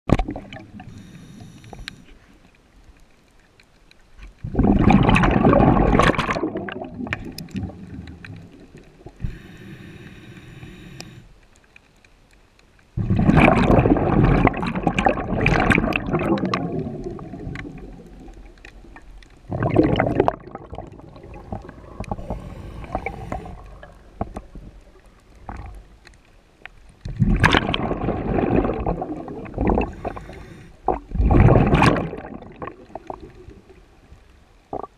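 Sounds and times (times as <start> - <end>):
exhaled bubbles gurgling: 0.1 - 2.0, 4.4 - 10.0, 13.0 - 26.0, 27.0 - 34.9
regulator hissing inhalations: 0.9 - 2.2, 9.2 - 11.3, 22.2 - 23.7, 29.9 - 30.8.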